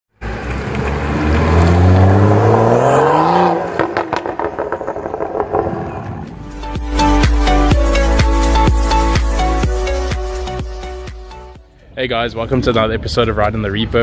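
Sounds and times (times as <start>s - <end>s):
engine popping: 0.2s - 6.4s
car engine accelerating: 0.2s - 6.8s.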